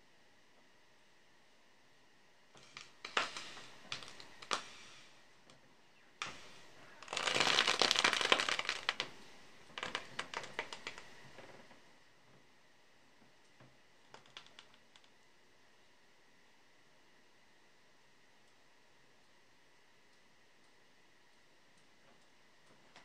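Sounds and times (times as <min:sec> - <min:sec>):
sharp crackles of fat: 0:02.6 - 0:05.0, 0:06.1 - 0:11.7, 0:14.0 - 0:15.2.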